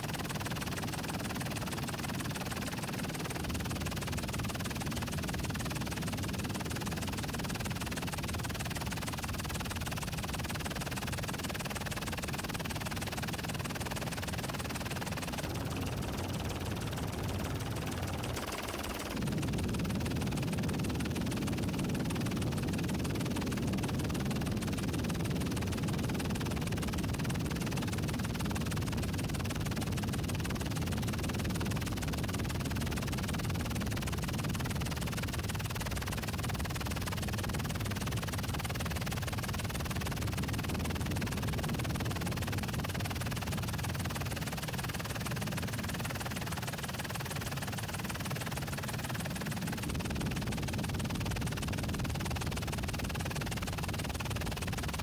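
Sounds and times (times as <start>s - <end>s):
helicopter rumble from inside cabin: 0.0s - 55.0s.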